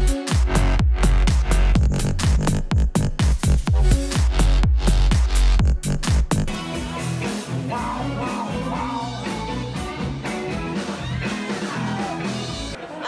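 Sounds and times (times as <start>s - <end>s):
heavy electronic beat: 0.0s - 10.8s
rock song with guitar and singing: 6.5s - 12.8s.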